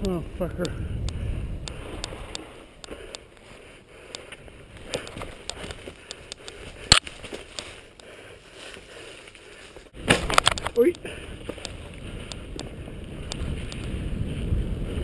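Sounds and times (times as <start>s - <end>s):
bike rattling: 4.3s - 15.0s.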